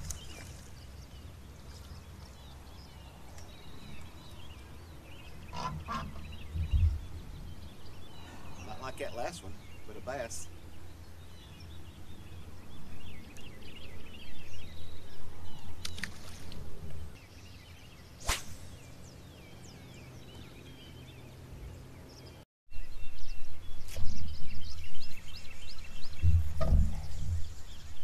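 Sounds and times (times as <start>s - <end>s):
small birds chirping: 0.0s - 28.0s
fishing rod swish: 18.2s - 18.8s.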